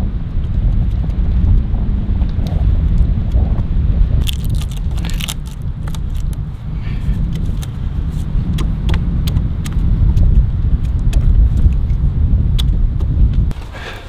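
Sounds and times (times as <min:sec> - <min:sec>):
wind rumble on microphone: 0:00.0 - 0:14.0
wood crackling as it splits: 0:04.1 - 0:06.5.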